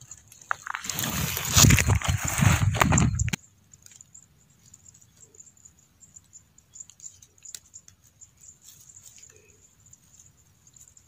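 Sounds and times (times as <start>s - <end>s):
hands rustling dry straw: 0.0s - 3.4s
insects trilling: 0.0s - 11.0s.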